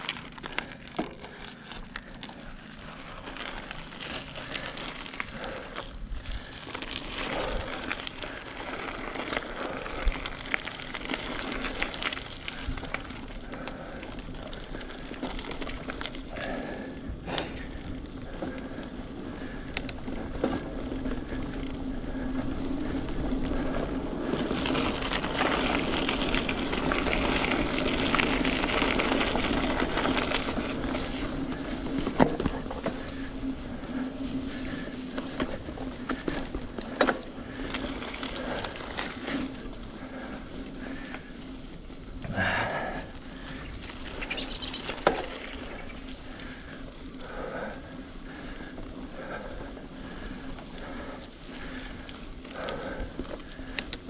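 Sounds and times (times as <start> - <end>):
bike clicks and rattles: 0.0 - 54.0
bike tyres rolling on dirt: 0.0 - 54.0.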